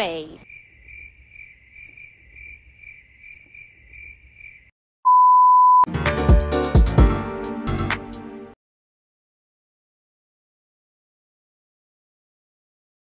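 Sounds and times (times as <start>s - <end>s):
crickets chirping: 0.2s - 4.7s
steady test-tone beep: 5.1s - 5.9s
music with heavy drum beat: 5.9s - 8.2s.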